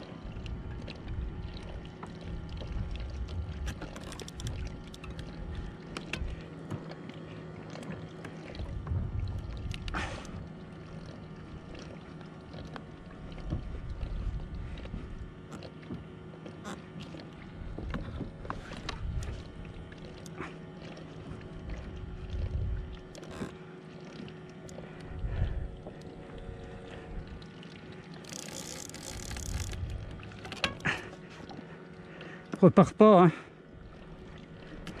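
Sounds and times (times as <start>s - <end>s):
water lapping against kayak hull: 0.0s - 35.0s
fishing rod and reel clicks: 3.6s - 6.3s, 23.1s - 23.6s, 28.1s - 31.0s.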